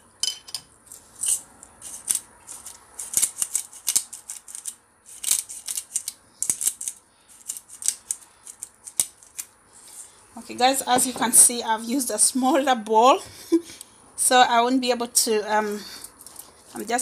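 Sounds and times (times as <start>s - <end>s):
pepper grinder crackling: 1.2s - 9.5s.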